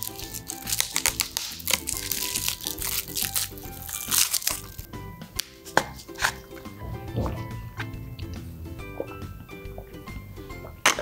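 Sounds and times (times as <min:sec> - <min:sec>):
plastic wrapper crinkling and tearing: 0:00.0 - 0:04.9
background music: 0:00.0 - 0:11.0.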